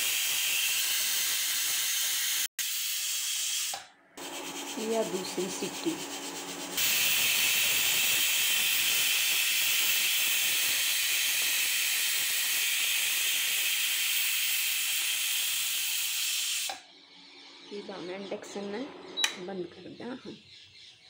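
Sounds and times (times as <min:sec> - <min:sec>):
pressure cooker whistle hissing: 0:00.0 - 0:04.5, 0:06.8 - 0:16.8.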